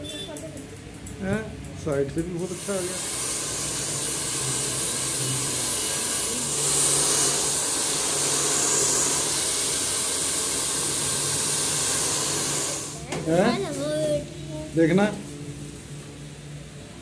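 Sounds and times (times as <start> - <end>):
hair dryer blowing: 2.6 - 13.0.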